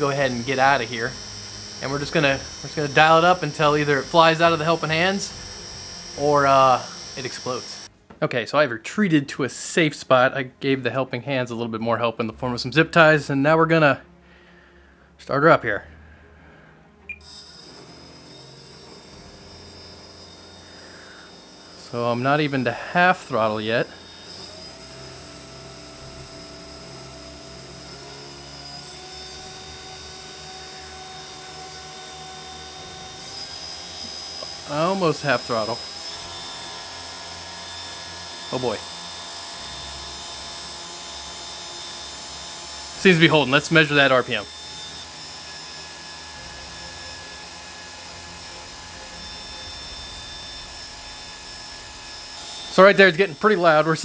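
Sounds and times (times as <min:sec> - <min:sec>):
fan whirring air: 0:00.0 - 0:08.0, 0:47.8 - 0:54.0
motor spinning fan whine: 0:00.0 - 0:08.1, 0:16.0 - 0:54.0.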